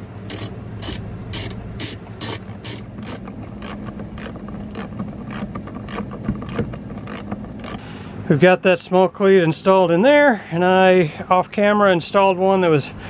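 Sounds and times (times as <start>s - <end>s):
ratchet wrench clicking: 0.3s - 4.9s.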